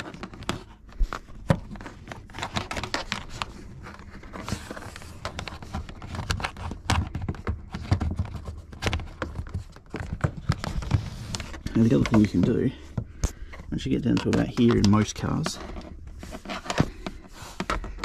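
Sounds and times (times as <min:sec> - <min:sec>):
rustling: 0:00.0 - 0:18.0.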